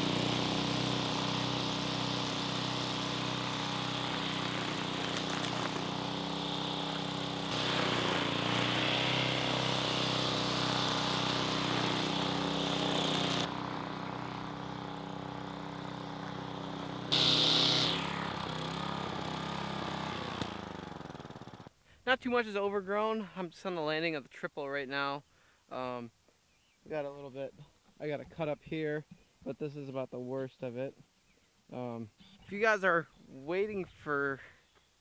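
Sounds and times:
string trimmer gas engine running: 0.0 - 21.7.

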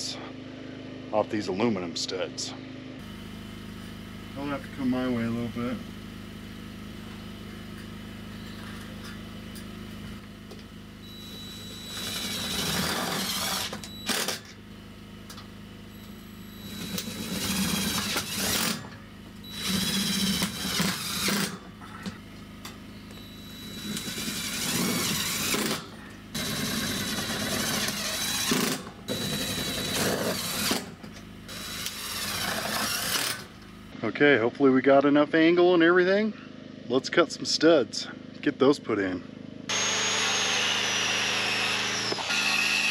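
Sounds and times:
cordless drill driving screws: 11.5 - 14.5, 16.6 - 18.9, 19.5 - 21.6, 23.1 - 30.9, 31.5 - 33.5, 39.7 - 42.9.

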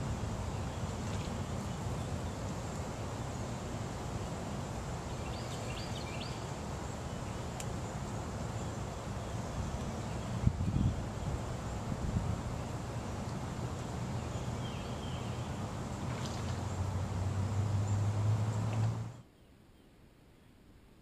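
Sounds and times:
wind rumble on microphone: 8.1 - 14.6.

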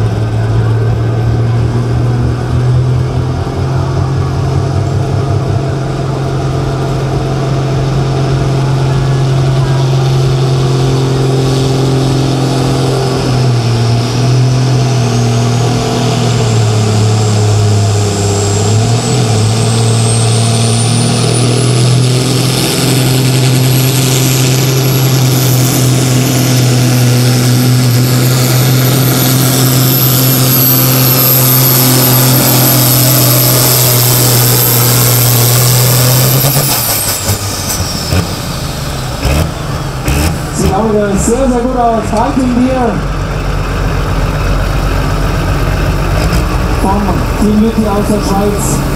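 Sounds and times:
tractor diesel engine at high revs: 0.0 - 48.9
high turbo whistle: 23.9 - 39.1.

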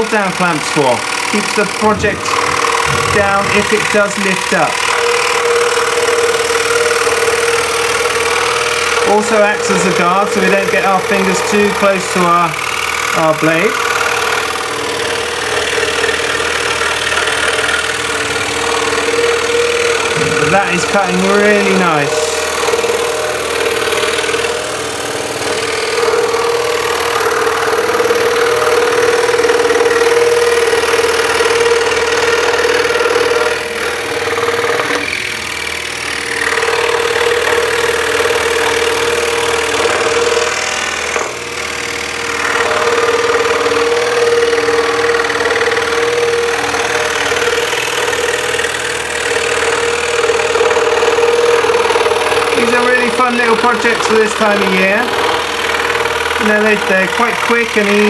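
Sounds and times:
scroll saw cutting wood: 0.0 - 58.0.

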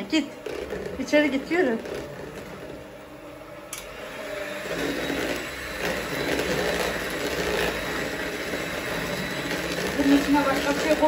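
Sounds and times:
electric hand mixer running: 0.0 - 11.0.

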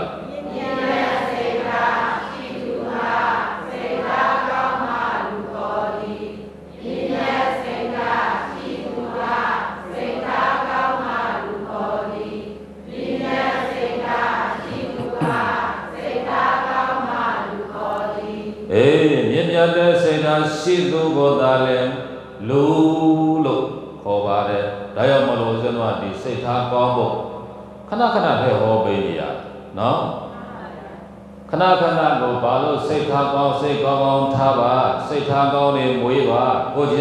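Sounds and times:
group reciting in unison: 0.0 - 27.5.

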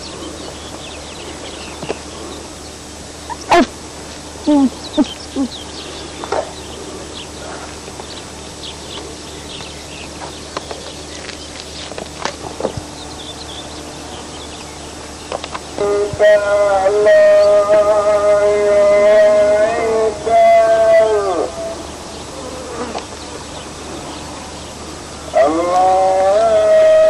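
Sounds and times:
birds chirping: 0.0 - 27.0
faint hum: 0.0 - 27.0
short animal calls: 2.0 - 3.8.

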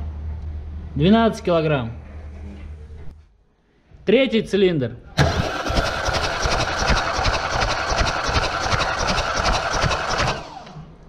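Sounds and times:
engine cranking on starter: 5.2 - 10.9.

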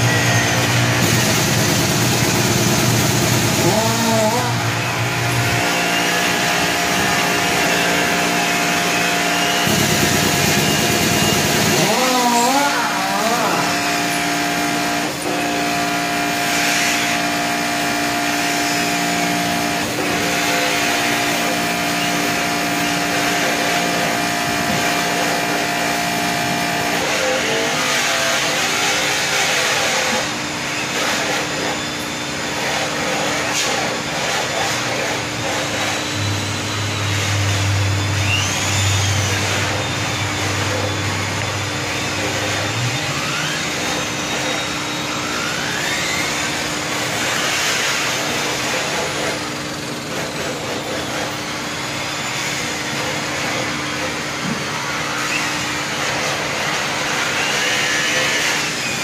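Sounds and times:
machine motor hum: 0.0 - 59.0.

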